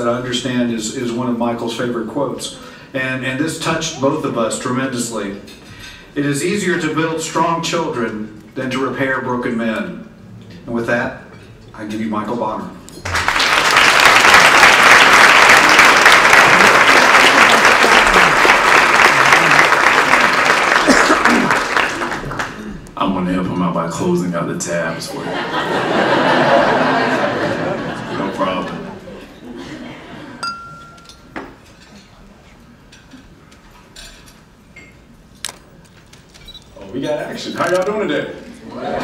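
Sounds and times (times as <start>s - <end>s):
audience applauding: 13.0s - 22.7s
murmur of people: 15.5s - 34.2s
tableware clinking: 30.4s - 32.2s, 32.9s - 35.1s.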